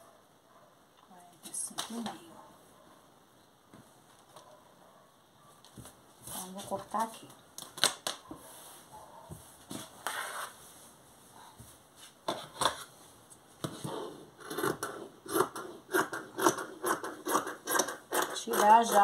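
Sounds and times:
scissors cutting cloth: 14.4 - 19.0.

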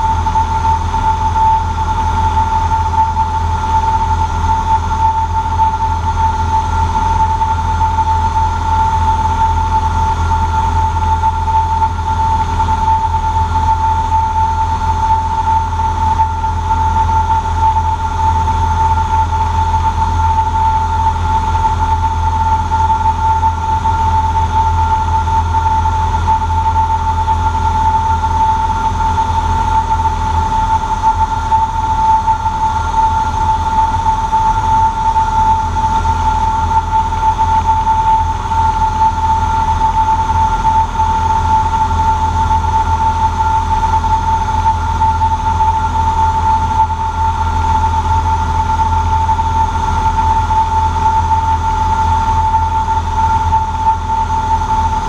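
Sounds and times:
airplane engine and propeller droning: 0.0 - 55.0.

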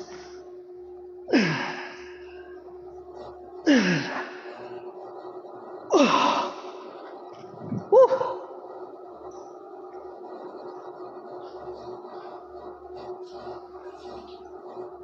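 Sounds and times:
faint hum: 0.0 - 15.0
man grunting and exhaling: 3.7 - 4.4.

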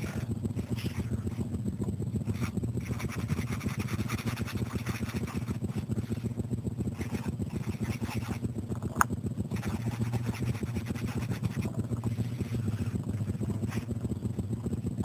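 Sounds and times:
marker scratching on paper: 0.0 - 1.5, 2.3 - 6.3, 6.9 - 8.4, 9.5 - 14.0
steady low hum: 0.0 - 15.0.

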